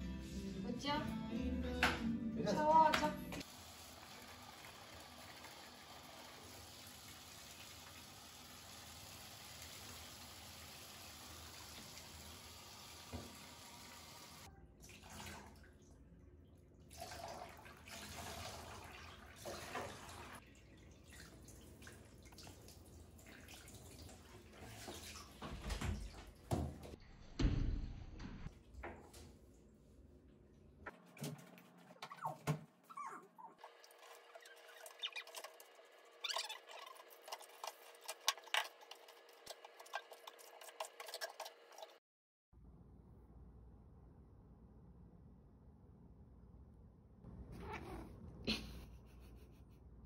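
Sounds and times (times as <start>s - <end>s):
water running from tap: 3.4s - 15.8s, 16.9s - 27.0s, 33.6s - 42.0s.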